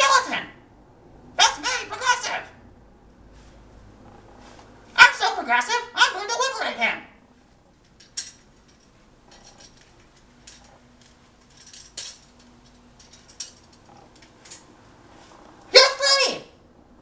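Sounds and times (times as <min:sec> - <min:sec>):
wire birdcage clicking and clinking: 0:07.9 - 0:14.7.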